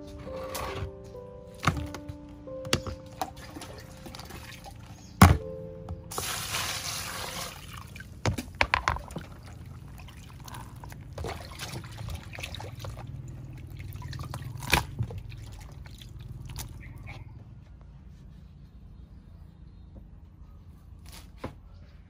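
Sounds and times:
water dripping and draining: 0:02.7 - 0:05.5, 0:06.1 - 0:17.2
water pouring into colander: 0:06.1 - 0:08.1, 0:09.0 - 0:16.6.

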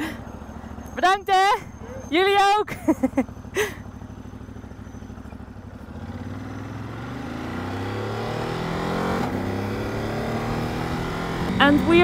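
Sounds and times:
motorcycle engine idling: 0:00.0 - 0:07.8
motorcycle accelerating: 0:00.0 - 0:12.0.

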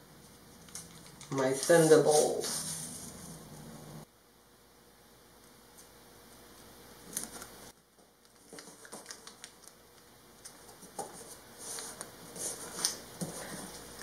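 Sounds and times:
tape crinkling: 0:08.2 - 0:09.8.

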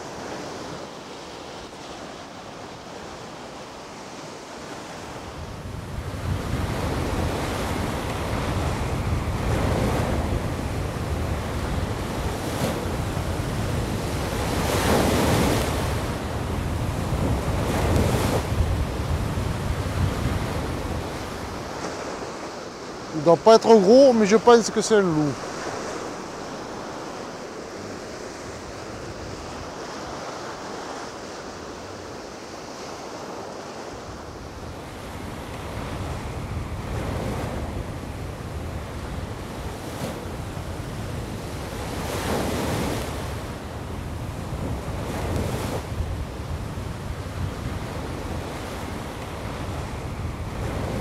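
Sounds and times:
sea waves breaking on shore: 0:00.0 - 0:51.0
wind buffeting microphone: 0:05.2 - 0:23.3, 0:34.1 - 0:51.0.

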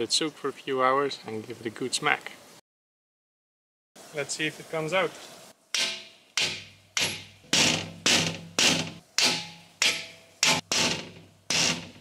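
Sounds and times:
hammer striking steel: 0:05.8 - 0:12.0.

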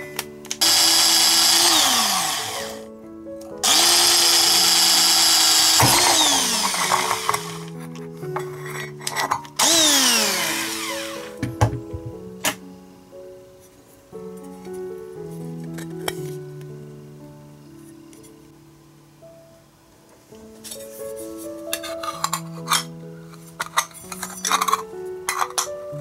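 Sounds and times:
background music: 0:00.0 - 0:26.0
cordless drill boring through steel: 0:00.6 - 0:02.8, 0:03.6 - 0:07.7, 0:09.6 - 0:11.4.

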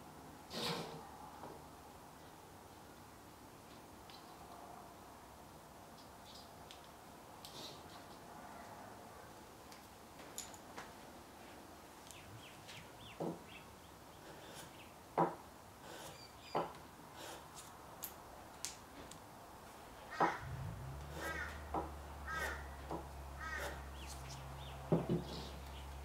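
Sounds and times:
faint bird chirps: 0:16.0 - 0:16.7.

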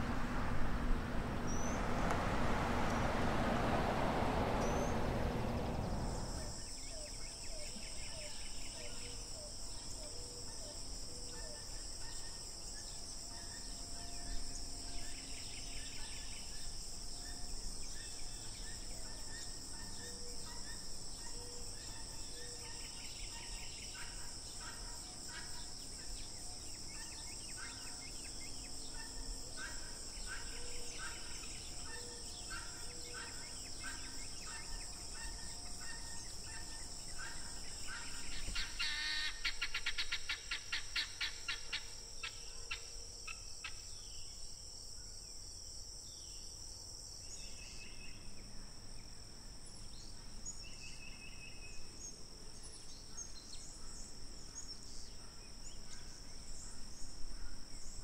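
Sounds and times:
faint mountain stream rush: 0:00.0 - 0:06.6
insect trill: 0:00.0 - 0:58.0
insects droning: 0:00.0 - 0:58.0.

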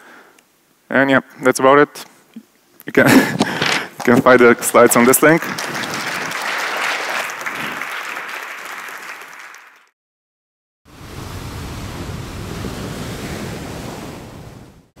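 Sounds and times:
audience applause: 0:05.0 - 0:09.9
ocean surf rushing: 0:10.9 - 0:15.0.

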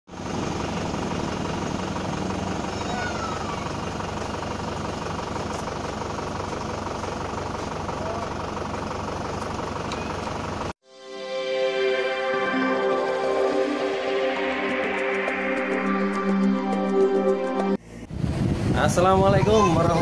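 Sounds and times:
engine idling: 0:00.1 - 0:10.8.

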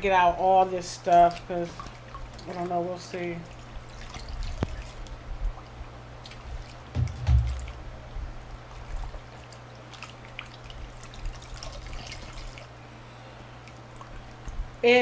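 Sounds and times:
water sloshing in a bowl: 0:00.0 - 0:12.7, 0:13.5 - 0:15.0
water dripping and trickling: 0:00.8 - 0:12.7
low thump: 0:07.0 - 0:07.9.

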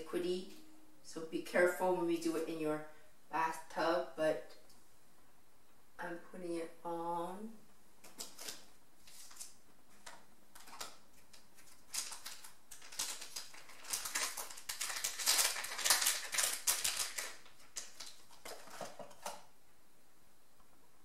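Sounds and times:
plastic packaging crinkling: 0:08.0 - 0:19.4.

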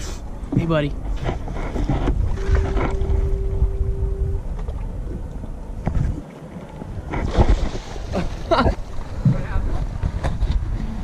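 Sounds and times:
water sloshing against boat: 0:00.0 - 0:11.0
wind rumbling on microphone: 0:00.0 - 0:11.0
water splashes: 0:01.2 - 0:11.0
steady tone: 0:02.2 - 0:06.2.

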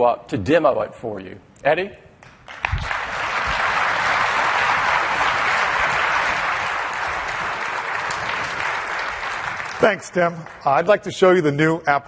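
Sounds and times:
audience applauding: 0:02.2 - 0:11.2.

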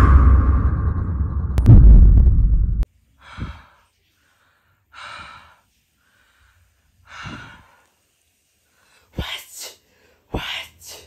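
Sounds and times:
loud deep droning: 0:00.0 - 0:02.8
person breathing: 0:03.2 - 0:08.0, 0:08.6 - 0:11.0.

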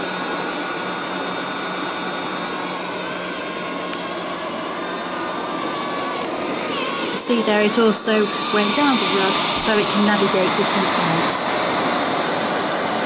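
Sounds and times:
robot vacuum cleaner whirring: 0:00.0 - 0:13.0.

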